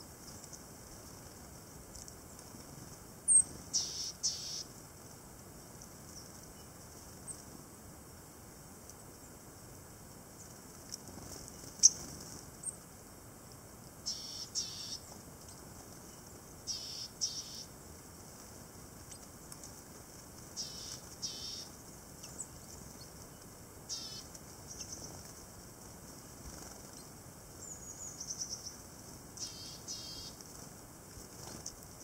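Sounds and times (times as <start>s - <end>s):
tits calling: 3.3s - 4.7s, 11.5s - 12.8s, 14.0s - 17.8s, 20.5s - 25.4s, 26.2s - 30.4s.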